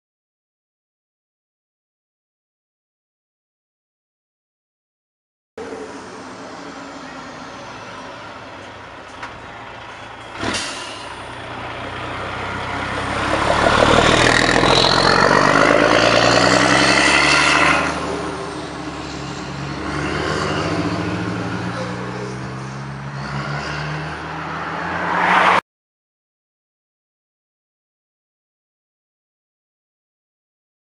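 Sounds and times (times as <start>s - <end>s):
truck diesel engine accelerating: 5.6s - 25.6s.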